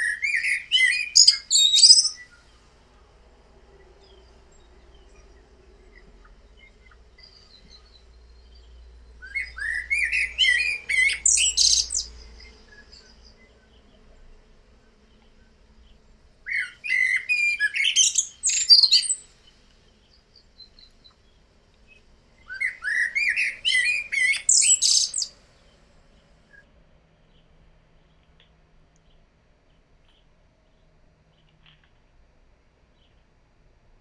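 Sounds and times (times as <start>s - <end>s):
blackbird singing: 0.0s - 2.6s, 4.0s - 26.6s.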